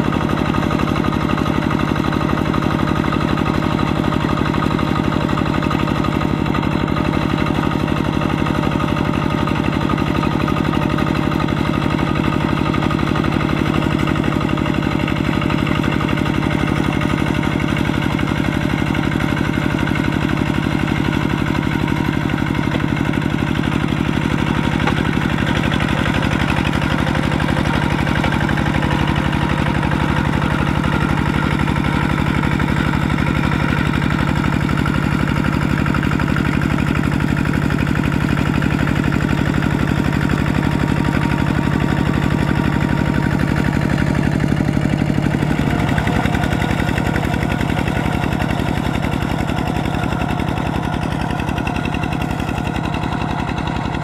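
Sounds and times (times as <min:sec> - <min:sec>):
diesel engine rapid firing beat: 0:00.0 - 0:54.0.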